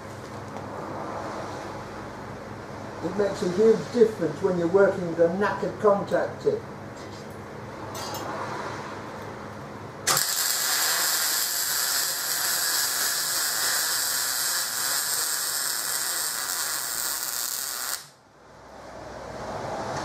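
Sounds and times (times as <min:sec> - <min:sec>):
welder arc running: 0:10.0 - 0:18.2.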